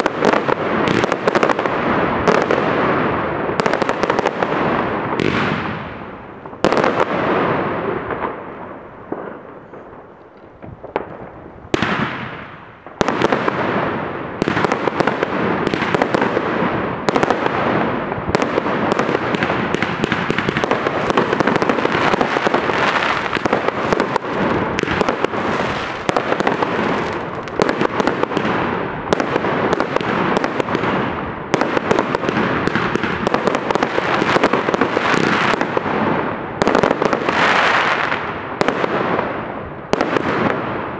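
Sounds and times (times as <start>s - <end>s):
fireworks bangs and crackling: 0.0s - 40.9s.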